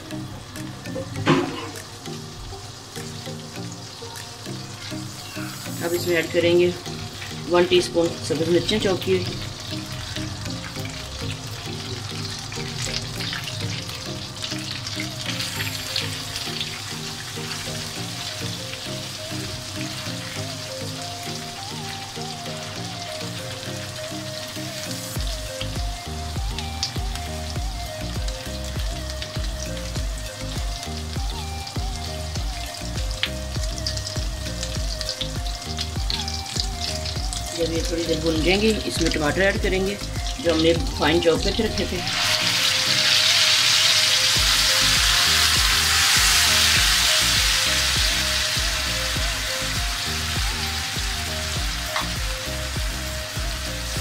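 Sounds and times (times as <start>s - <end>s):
chillies sizzling in a pan: 0.0s - 54.0s
background music with bass beat: 17.4s - 37.6s, 44.4s - 54.0s.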